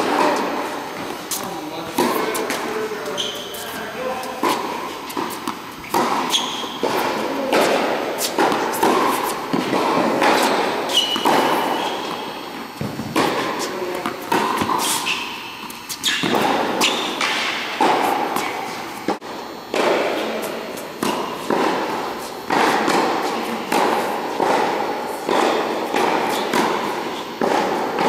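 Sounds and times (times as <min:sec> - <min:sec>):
ball bouncing on hard court: 0:00.0 - 0:28.0
tennis ball struck by racket: 0:04.4 - 0:12.2.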